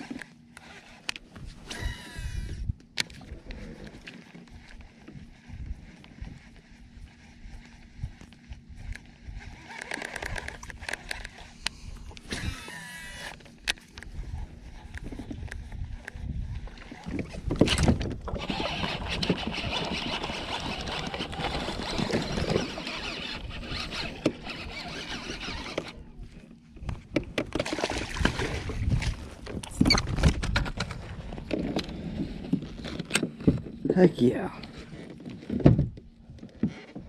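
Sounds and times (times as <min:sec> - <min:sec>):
water splashing: 0:27.6 - 0:29.0.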